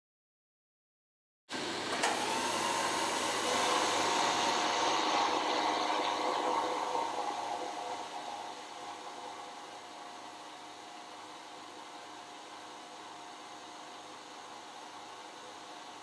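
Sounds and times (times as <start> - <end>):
milling machine whine: 1.6 - 12.3.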